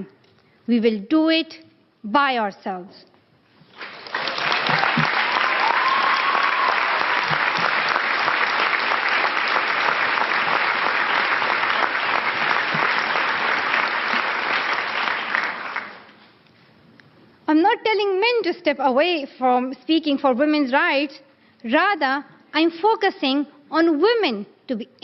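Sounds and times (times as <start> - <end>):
audience applauding: 3.7 - 16.1.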